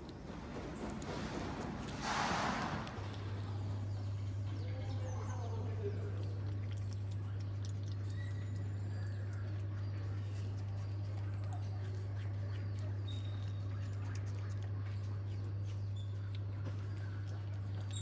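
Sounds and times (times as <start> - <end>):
low electrical hum: 0.0 - 18.0
wet chewing clicks: 0.0 - 18.0
monkey squeaky chirps: 12.2 - 14.0.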